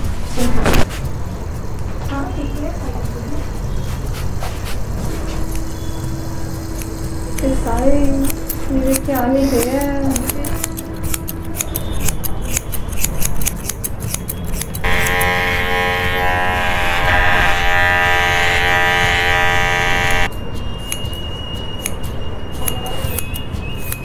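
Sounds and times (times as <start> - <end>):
scissors snipping: 6.7 - 15.3, 22.6 - 24.0
electric hair clippers buzzing: 14.8 - 20.3.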